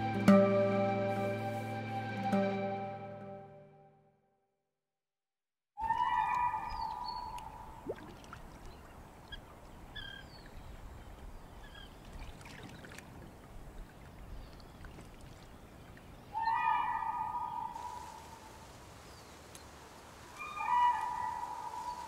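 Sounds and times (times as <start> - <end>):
long steady animal call: 5.8 - 7.8, 16.2 - 18.6, 20.3 - 22.0.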